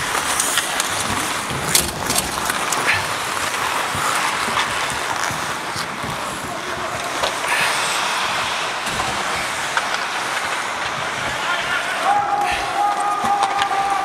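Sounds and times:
faint stick or puck clicks: 0:00.0 - 0:06.2, 0:08.9 - 0:11.4, 0:12.3 - 0:14.0
skate blades scraping ice: 0:00.0 - 0:14.0
wind on microphone: 0:00.9 - 0:11.5.

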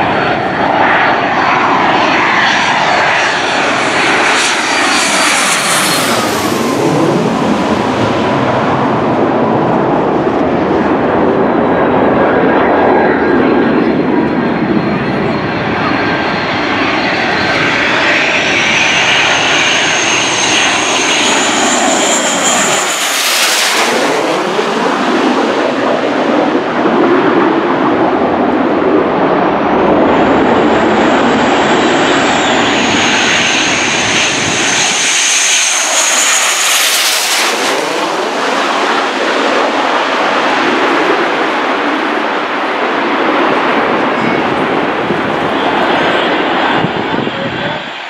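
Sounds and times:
jets passing low overhead: 0:00.0 - 0:48.0.

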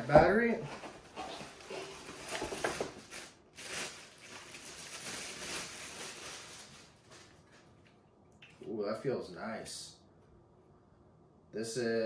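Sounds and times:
plastic bag crinkling: 0:01.3 - 0:07.8.

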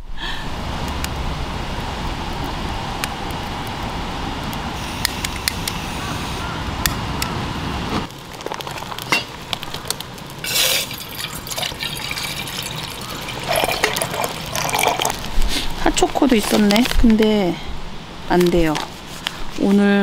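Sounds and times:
outdoor noise: 0:00.0 - 0:20.0
water poured into metal cup: 0:10.4 - 0:15.4.

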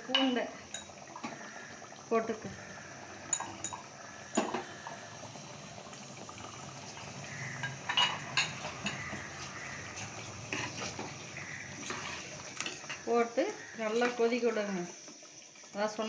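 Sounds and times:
curry bubbling in a pot: 0:00.0 - 0:16.0.

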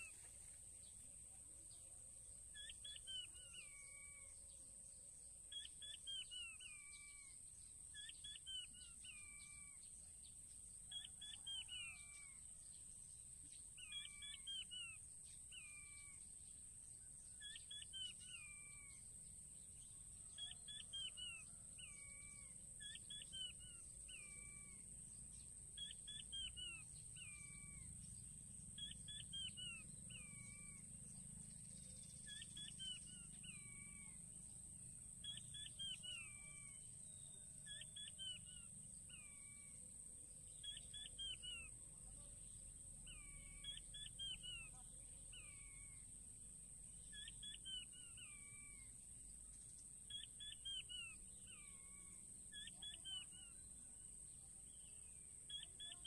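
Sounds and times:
quail whistled calls: 0:02.6 - 0:04.4, 0:05.5 - 0:07.4, 0:08.0 - 0:09.8, 0:10.9 - 0:12.4, 0:13.8 - 0:16.2, 0:17.4 - 0:19.0, 0:20.3 - 0:24.9, 0:25.8 - 0:28.0, 0:28.8 - 0:30.9, 0:32.2 - 0:34.2, 0:35.2 - 0:36.9, 0:37.6 - 0:39.8, 0:40.6 - 0:41.7, 0:43.1 - 0:46.1, 0:47.1 - 0:49.0, 0:50.1 - 0:53.6, 0:55.5 - 0:56.0.

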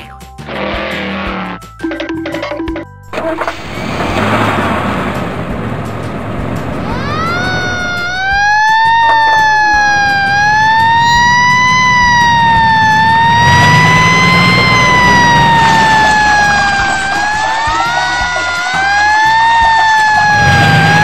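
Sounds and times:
fire truck siren wailing: 0:03.1 - 0:21.0.

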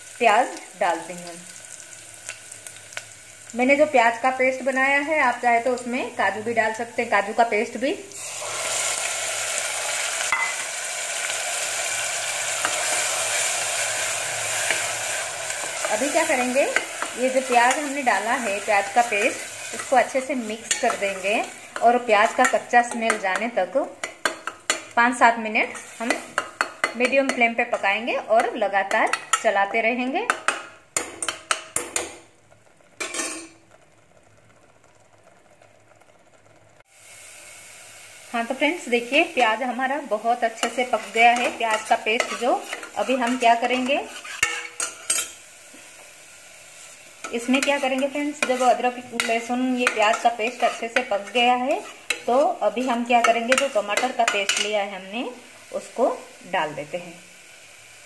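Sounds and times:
paste sizzling in hot oil: 0:00.0 - 0:58.0
ladle scraping metal pot: 0:40.6 - 0:45.4, 0:47.2 - 0:54.8.

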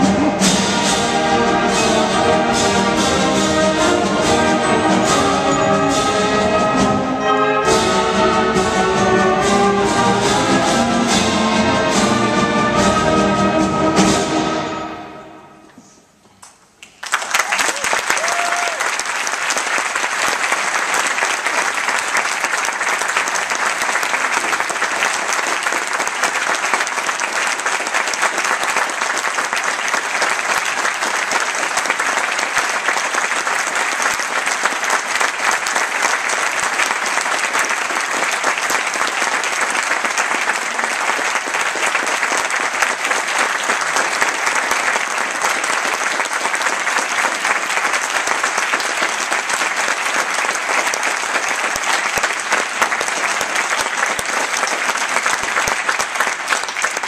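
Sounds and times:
audience applauding: 0:16.8 - 0:57.0.

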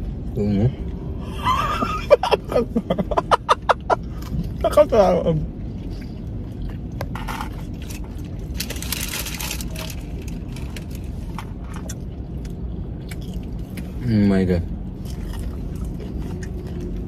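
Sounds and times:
low hum inside car: 0:00.0 - 0:17.0
paper wrapping rustling: 0:08.5 - 0:11.3.

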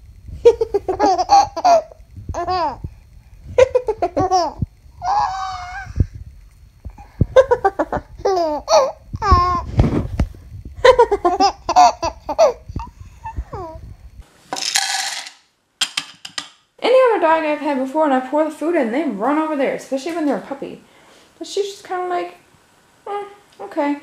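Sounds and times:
infant laughing: 0:00.5 - 0:02.8, 0:03.6 - 0:06.0, 0:07.4 - 0:09.7, 0:10.8 - 0:13.8
dog kibble poured into bowl: 0:14.6 - 0:15.3.

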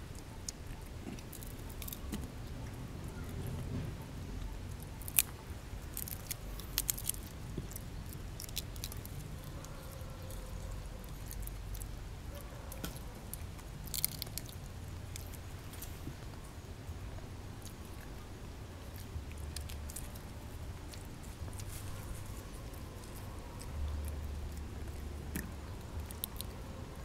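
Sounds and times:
monkey chewing and crunching: 0:00.0 - 0:27.0
steady low rumble: 0:00.0 - 0:27.0.

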